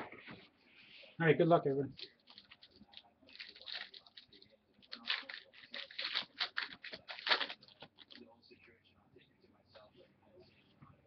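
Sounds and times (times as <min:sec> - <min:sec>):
foil wrapper tearing and crinkling: 0:02.0 - 0:08.2.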